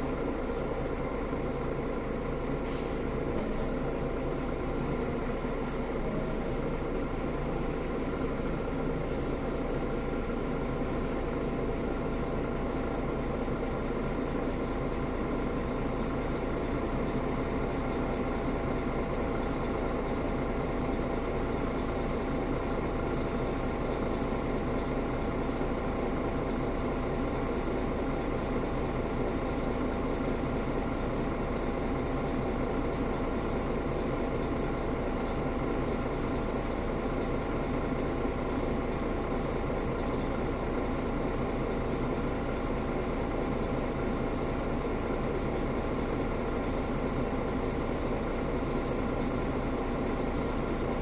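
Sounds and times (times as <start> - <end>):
bus engine idling: 0.0 - 51.0.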